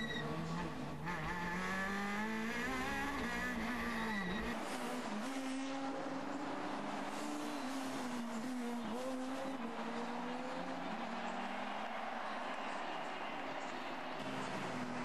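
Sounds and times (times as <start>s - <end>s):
race car engine revving: 0.0s - 15.0s.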